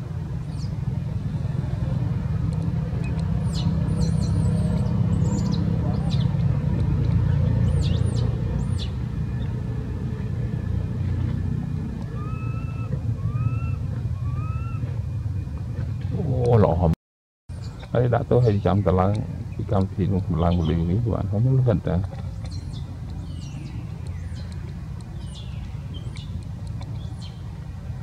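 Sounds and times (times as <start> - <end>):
steady low rumble: 0.0 - 28.0
baby monkey squeaky calls: 12.1 - 14.8.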